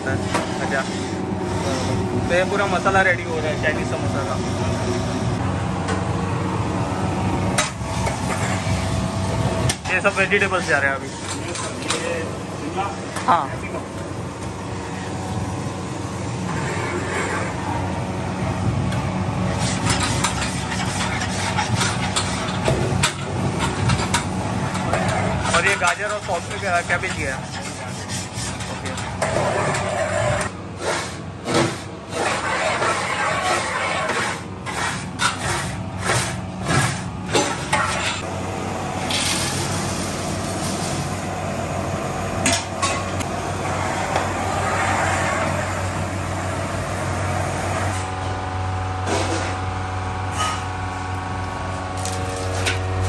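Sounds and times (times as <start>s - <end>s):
steady rush and low hum: 0.0s - 34.9s, 37.2s - 53.0s
spatula scraping a pan: 19.5s - 22.6s, 24.9s - 38.2s.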